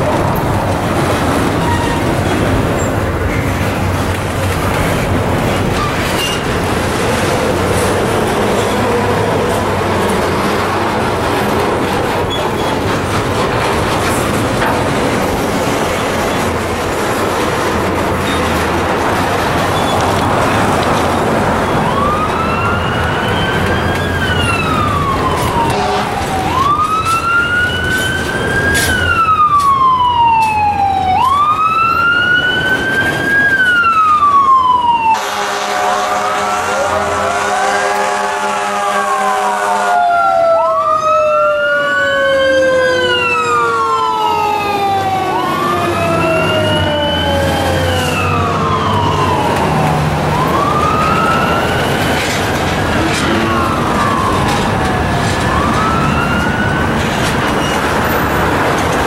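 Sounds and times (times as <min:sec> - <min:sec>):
emergency siren wailing: 0:00.0 - 0:59.0
vehicle noise: 0:00.0 - 0:59.0.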